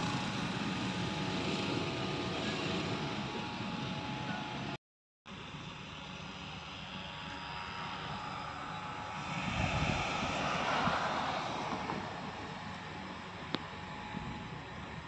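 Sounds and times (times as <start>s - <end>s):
passing motor vehicle: 8.0s - 15.0s.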